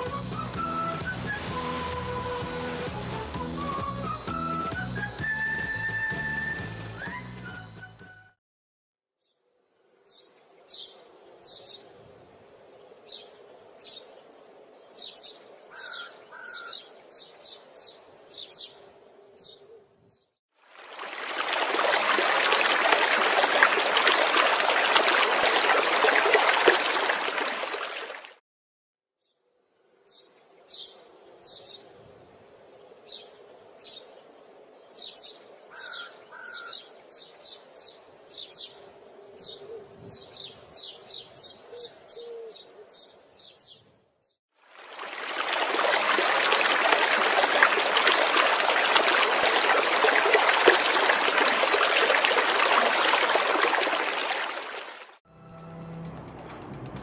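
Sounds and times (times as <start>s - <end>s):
river rushing over rocks: 20.7s - 28.3s, 44.8s - 55.2s.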